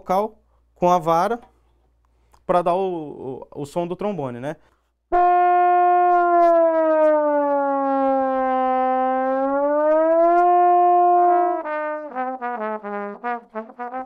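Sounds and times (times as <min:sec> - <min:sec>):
slide trombone bending a note: 0:05.1 - 0:14.0.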